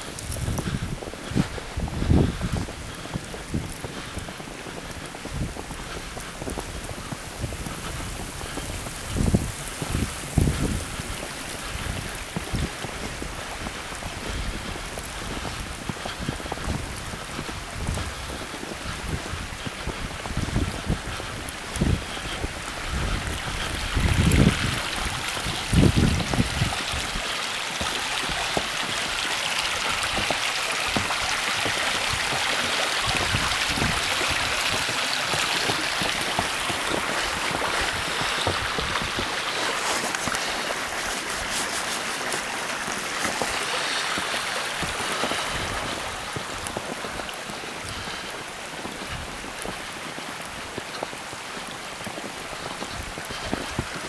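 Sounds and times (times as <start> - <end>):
stream flowing: 21.1 - 54.0.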